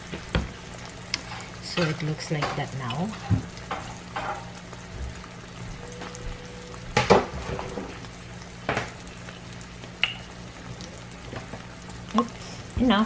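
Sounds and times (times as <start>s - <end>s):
food frying sizzle: 0.0s - 13.0s.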